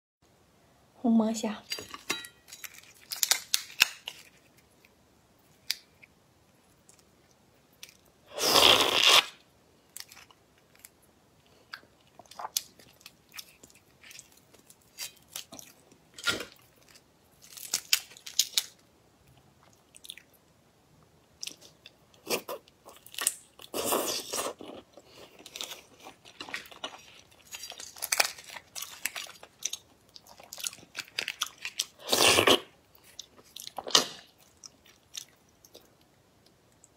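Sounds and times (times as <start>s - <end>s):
shrimp shells cracking: 1.9s - 4.6s, 17.4s - 18.8s, 25.6s - 29.8s
tearing crunch: 2.5s - 4.7s, 7.8s - 9.4s, 12.3s - 18.8s, 25.4s - 29.8s.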